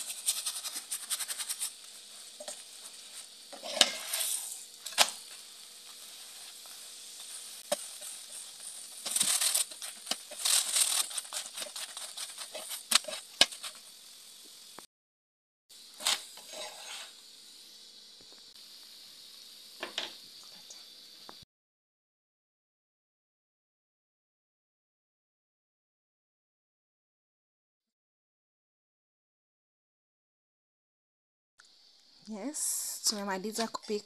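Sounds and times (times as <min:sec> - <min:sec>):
spatula scraping pan: 0:00.0 - 0:13.9, 0:15.9 - 0:17.2
flatbread sizzling in oil: 0:00.0 - 0:14.9, 0:15.7 - 0:21.4.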